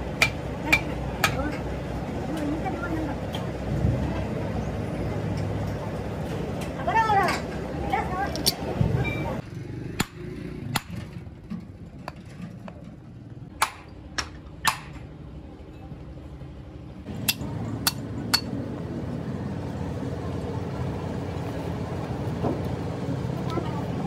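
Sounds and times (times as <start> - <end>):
low steady rumble: 11.0 - 24.0.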